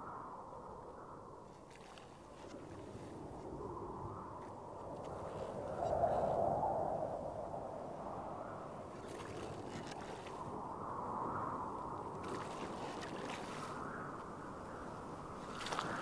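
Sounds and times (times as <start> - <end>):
wind and water rushing: 1.7 - 16.0.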